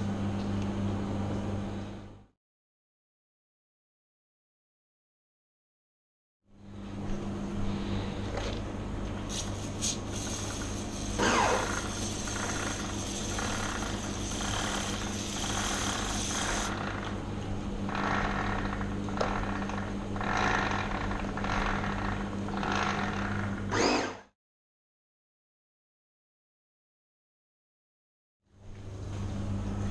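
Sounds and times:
steady low hum: 6.5s - 23.8s
aerosol spray hissing: 9.3s - 16.7s.

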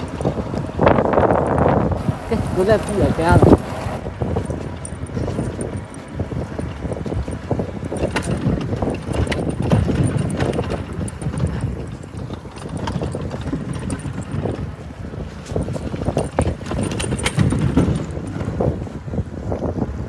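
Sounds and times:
bicycle tyres rumbling on wet pavement: 0.0s - 19.3s
bicycle frame knocking and rattling: 4.1s - 19.0s.

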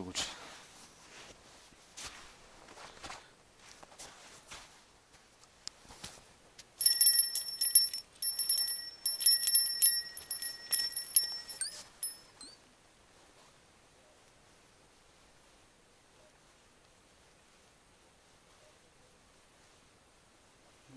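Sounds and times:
small metal bell jingling: 6.8s - 12.6s.

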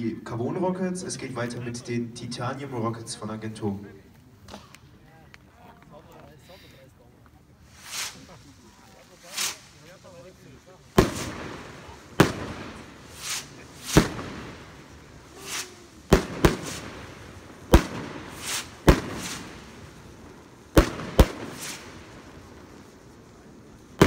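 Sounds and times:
fireworks bangs: 3.5s - 24.0s
rushing hisses: 6.4s - 24.0s.

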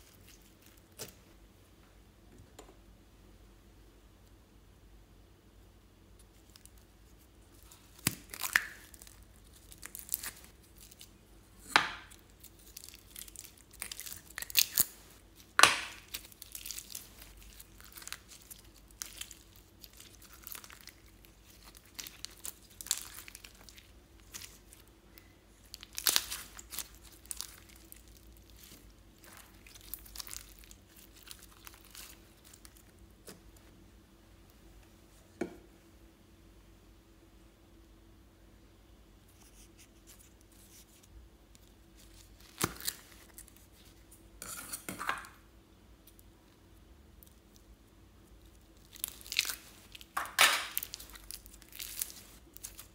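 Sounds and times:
slime crackling and popping: 7.5s - 32.9s, 41.5s - 43.6s, 48.3s - 52.9s
sticky slime tearing: 25.6s - 33.4s, 42.0s - 43.6s, 48.8s - 52.9s.

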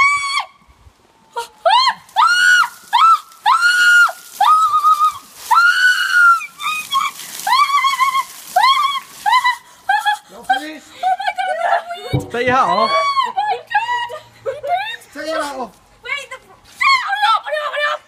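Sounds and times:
woman shrieking: 12.7s - 14.2s.

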